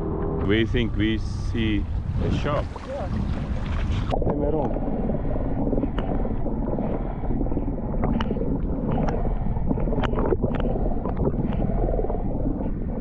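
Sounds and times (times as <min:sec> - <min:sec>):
underwater rumble of moving water: 0:00.0 - 0:13.0
underwater clicks and pops: 0:05.7 - 0:06.4, 0:08.0 - 0:11.8.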